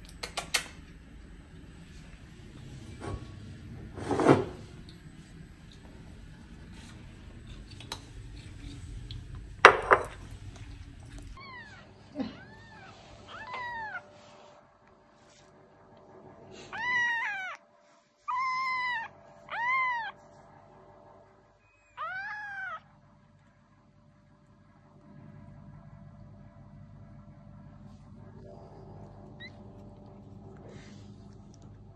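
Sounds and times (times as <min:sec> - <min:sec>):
kitten meowing: 0:12.4 - 0:14.0, 0:16.7 - 0:17.6, 0:18.3 - 0:20.2, 0:22.0 - 0:22.8.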